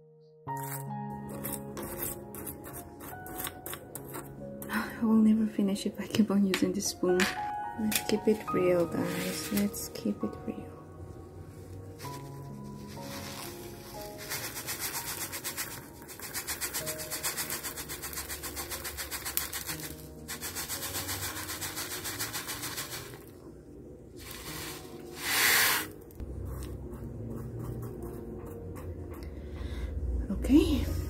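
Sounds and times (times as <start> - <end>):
small stones pouring into pot: 12.9 - 23.3.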